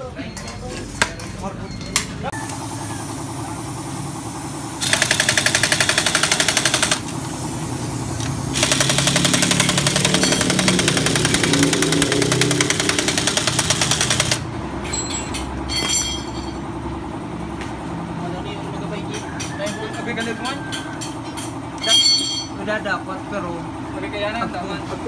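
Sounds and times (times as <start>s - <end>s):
impact wrench hammering: 4.8s - 7.4s, 8.5s - 14.4s
metal tools clinking: 9.7s - 11.6s, 14.8s - 16.7s, 19.4s - 22.6s.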